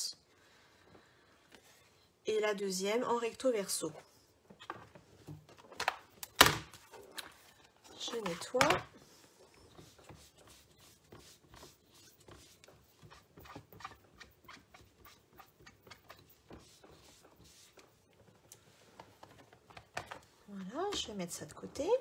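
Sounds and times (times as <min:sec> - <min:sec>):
cloth rubbing strokes: 0:08.9 - 0:19.0.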